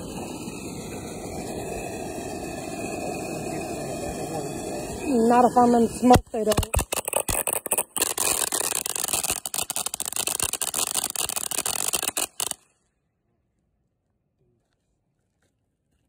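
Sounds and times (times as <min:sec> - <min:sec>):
firework fountain hissing and crackling: 0:00.0 - 0:12.7.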